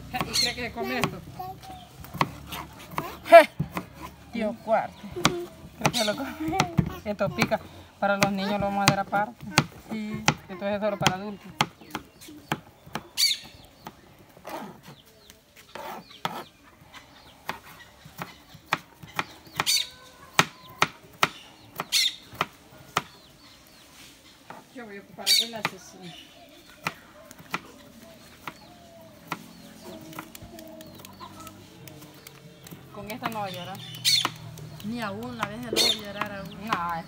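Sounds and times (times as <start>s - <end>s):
chickens clucking: 24.3s - 37.0s.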